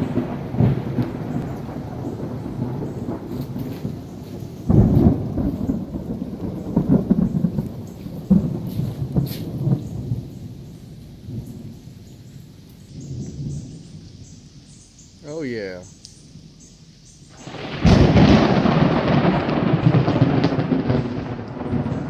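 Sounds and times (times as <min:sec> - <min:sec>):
thunder rumbling and clapping: 0:00.0 - 0:10.6, 0:17.4 - 0:22.0.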